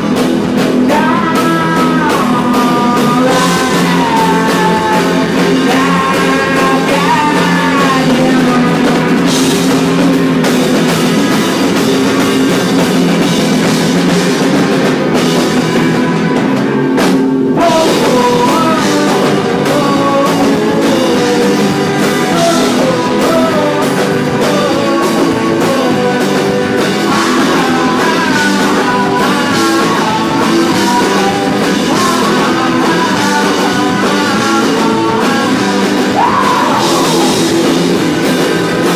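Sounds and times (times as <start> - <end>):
person singing: 0.0 - 9.7, 17.6 - 38.9
drum kit: 0.0 - 38.9
guitars: 0.0 - 38.9.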